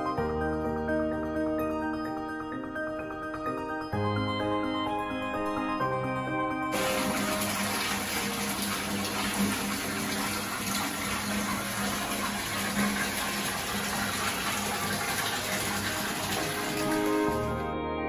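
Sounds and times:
tap water pouring into tub: 0:06.8 - 0:17.7.

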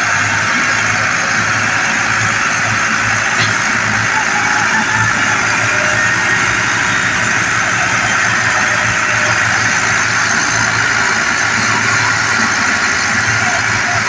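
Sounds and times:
tractor diesel engines under load: 0:00.0 - 0:14.0.

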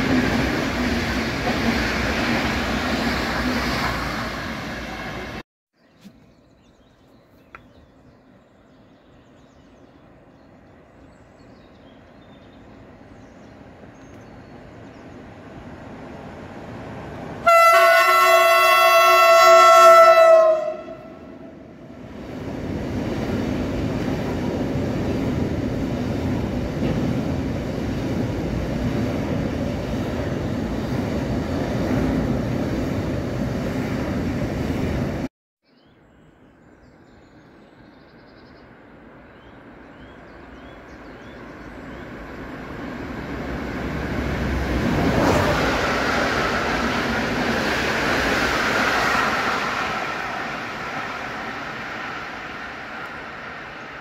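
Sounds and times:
freight train rumbling past: 0:00.0 - 0:05.4, 0:09.6 - 0:35.3, 0:38.7 - 0:54.0
passenger train rumbling: 0:00.0 - 0:05.4, 0:08.2 - 0:35.3, 0:38.6 - 0:54.0
locomotive horn: 0:17.4 - 0:21.6.

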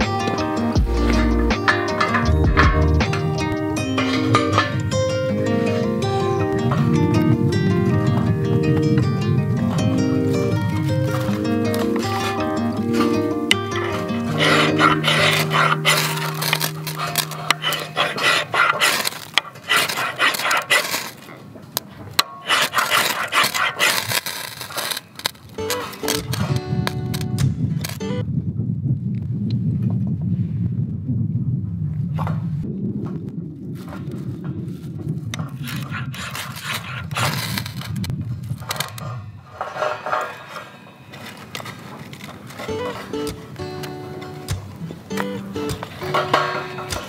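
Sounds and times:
knife scraping wood: 0:13.7 - 0:21.3, 0:22.2 - 0:26.5, 0:35.6 - 0:38.1.

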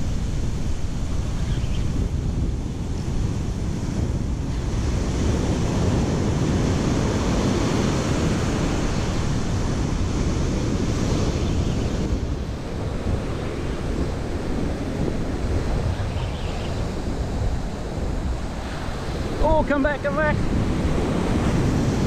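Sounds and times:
ocean surf breaking on beach: 0:00.0 - 0:22.0
wind buffeting microphone: 0:00.0 - 0:22.0.

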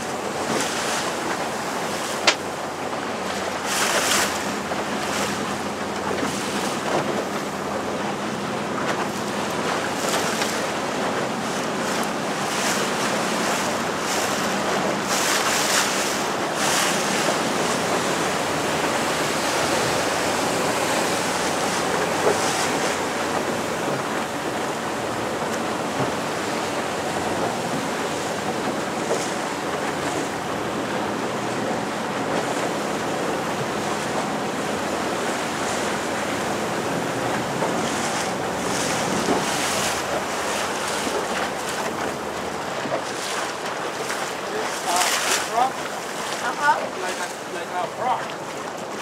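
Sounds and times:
sea water around boat: 0:00.0 - 0:49.0
surf breaking on rocks: 0:00.0 - 0:49.0
brief water splashes: 0:37.4 - 0:49.0.

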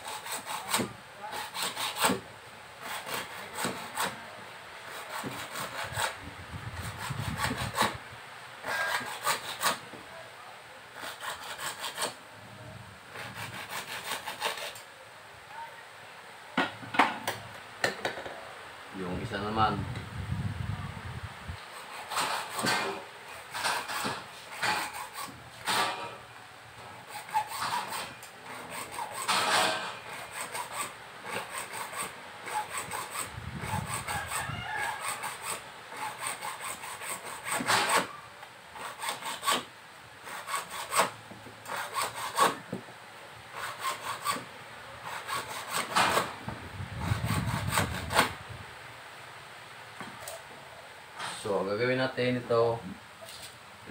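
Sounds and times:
hacksaw cutting plastic pipe: 0:00.0 - 0:02.2, 0:02.8 - 0:04.2, 0:04.9 - 0:06.2, 0:06.8 - 0:08.0, 0:08.6 - 0:09.8, 0:11.0 - 0:12.2, 0:13.2 - 0:14.8, 0:21.7 - 0:26.1, 0:27.0 - 0:38.2, 0:38.8 - 0:42.7, 0:43.6 - 0:46.4, 0:47.0 - 0:48.3.

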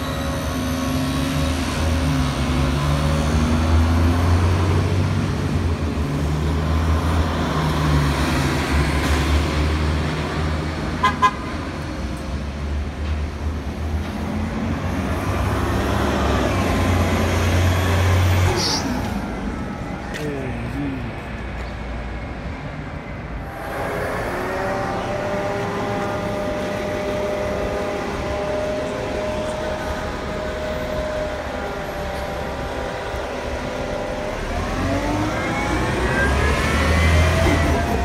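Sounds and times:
bus engines droning: 0:00.0 - 0:38.0
vehicle horn toots: 0:11.0 - 0:11.4.

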